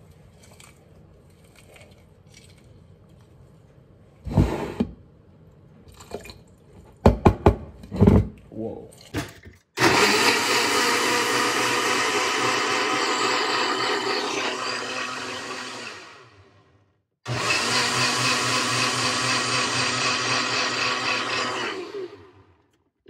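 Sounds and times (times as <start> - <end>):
blender motor running: 9.8 - 16.6, 17.3 - 22.6.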